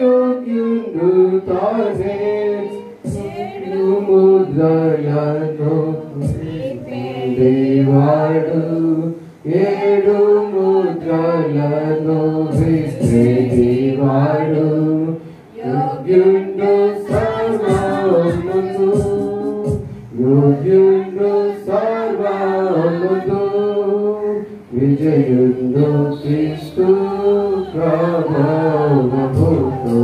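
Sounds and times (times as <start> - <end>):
man singing a hymn: 0.0 - 30.0.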